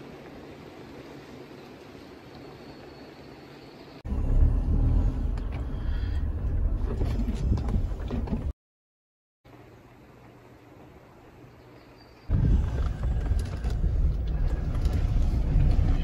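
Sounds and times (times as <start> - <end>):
engine and tyre rumble: 0.0 - 8.5, 12.3 - 16.0.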